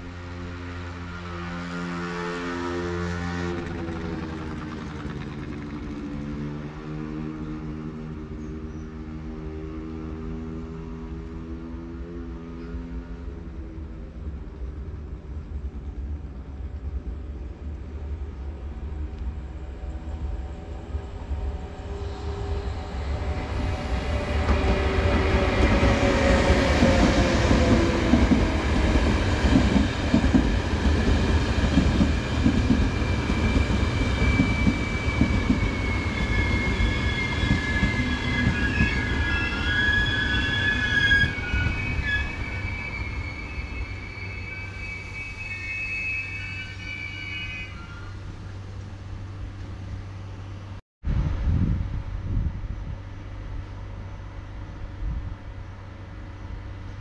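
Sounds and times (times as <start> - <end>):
passenger train passing: 0.0 - 57.0
rhythmic wheel noise on rails: 3.2 - 6.8, 14.2 - 57.0
high wheel squeal: 32.1 - 48.8.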